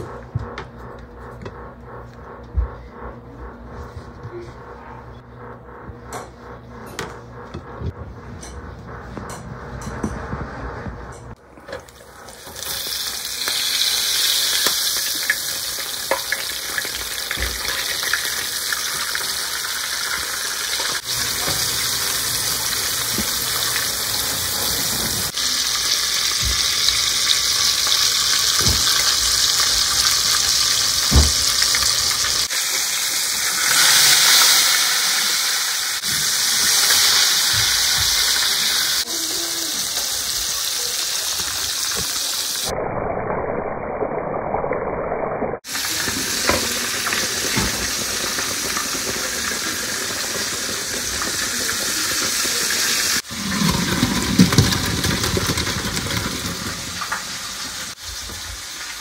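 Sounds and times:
fish sizzling in hot oil: 12.3 - 42.7, 45.6 - 59.0.

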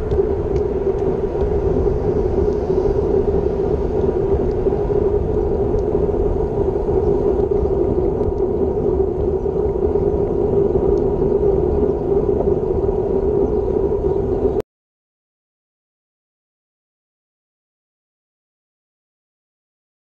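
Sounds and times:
tyre noise on asphalt: 0.0 - 14.6
wind rushing over microphone: 0.0 - 14.6.

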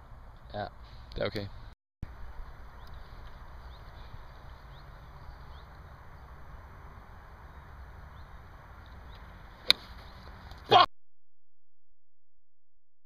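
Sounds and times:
outdoor background hiss: 0.0 - 10.7
golf club striking ball: 9.6 - 10.0.

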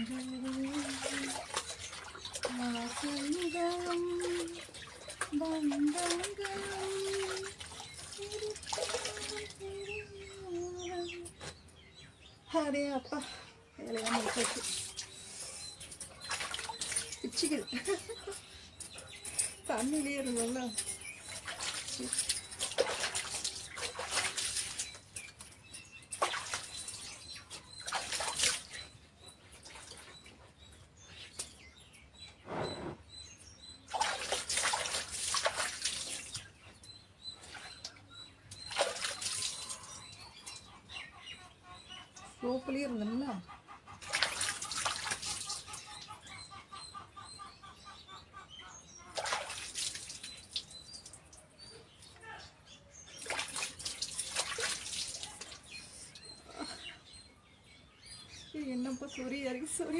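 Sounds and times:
water splashes: 0.0 - 10.8, 13.8 - 15.1, 16.2 - 17.8, 20.2 - 25.3, 26.1 - 28.9, 33.9 - 36.5, 38.6 - 40.1, 44.0 - 45.8, 49.1 - 51.2, 53.1 - 55.8
small birds chirping: 0.0 - 59.9.

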